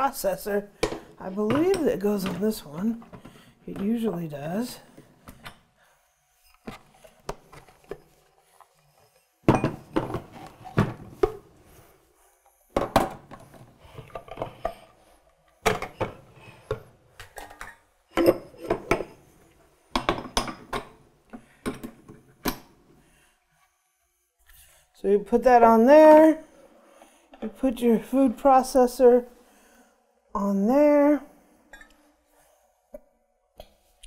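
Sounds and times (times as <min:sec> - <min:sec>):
plastic parts knocking and clicking: 0:12.7 - 0:14.9, 0:19.9 - 0:22.8.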